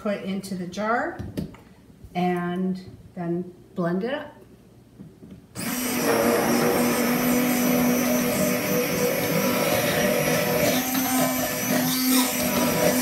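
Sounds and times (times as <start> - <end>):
stick blender humming: 5.6 - 13.0.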